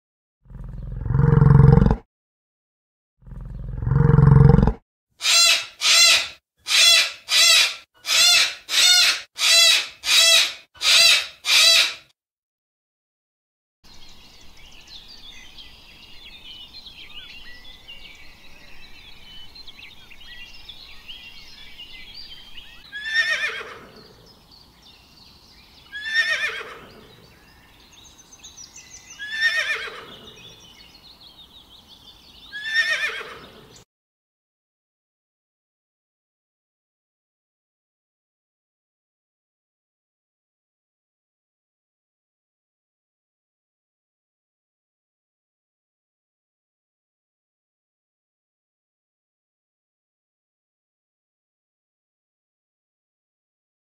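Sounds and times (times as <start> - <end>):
pony whinnying: 0.6 - 2.0, 3.4 - 12.1, 22.9 - 24.0, 25.9 - 27.1, 29.2 - 30.3, 32.5 - 33.5
birds chirping: 5.2 - 12.1, 13.9 - 33.8
short high calls: 5.2 - 12.1.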